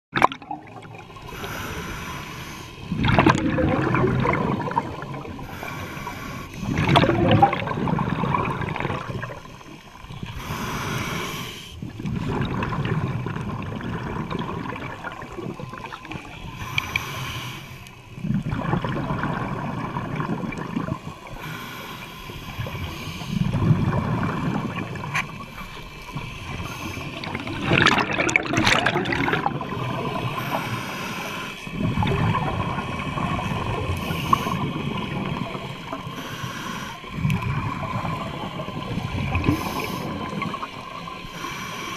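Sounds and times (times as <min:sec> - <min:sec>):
gurgling exhaled bubbles: 0:00.1 - 0:02.1, 0:02.8 - 0:11.1, 0:11.8 - 0:16.9, 0:18.2 - 0:21.4, 0:22.5 - 0:41.4
regulator inhale hiss: 0:01.2 - 0:02.9, 0:05.3 - 0:07.0, 0:09.3 - 0:11.9, 0:16.4 - 0:18.2, 0:21.2 - 0:23.6, 0:25.4 - 0:27.3, 0:29.9 - 0:31.8, 0:33.7 - 0:37.4, 0:39.2 - 0:41.9.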